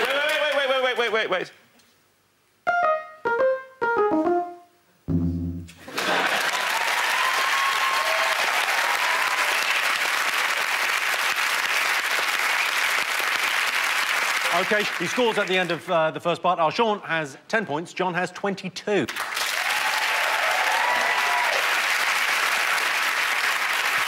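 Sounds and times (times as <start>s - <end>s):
audience applause: 0.0s - 1.3s, 5.8s - 15.8s, 19.1s - 24.0s
electronic keyboard notes: 2.6s - 5.8s.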